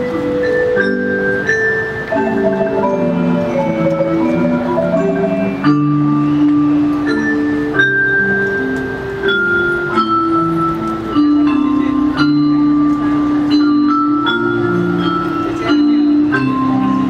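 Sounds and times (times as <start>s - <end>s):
mallet percussion band playing: 0.0s - 17.0s.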